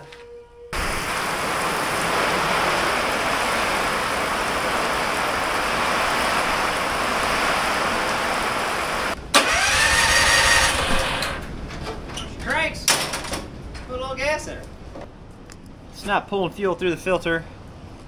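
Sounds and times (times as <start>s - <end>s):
heavy rain pouring: 0.8s - 11.5s
mower engine cranking: 9.3s - 11.6s.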